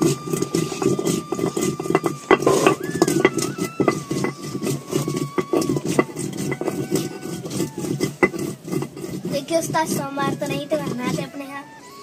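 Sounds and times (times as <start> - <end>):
stone knocks: 0.0 - 4.6
stone grinding on stone slab: 0.0 - 12.0.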